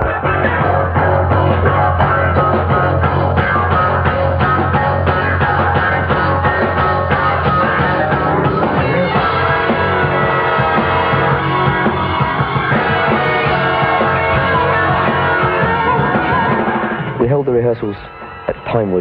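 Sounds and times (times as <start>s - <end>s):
rock band music: 0.0s - 19.0s
steady drum beat: 0.0s - 19.0s.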